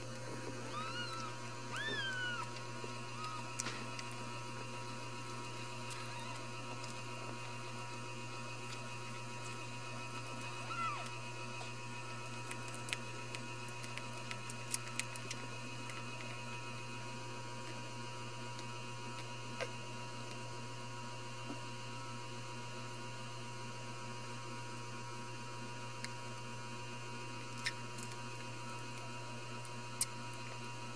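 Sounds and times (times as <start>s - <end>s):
low electrical hum: 0.0s - 30.9s.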